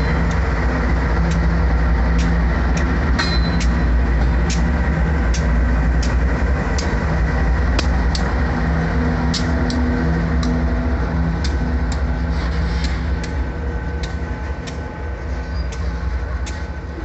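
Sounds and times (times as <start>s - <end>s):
diesel locomotive engines droning: 0.0s - 17.0s
wheels clicking on track: 0.0s - 17.0s.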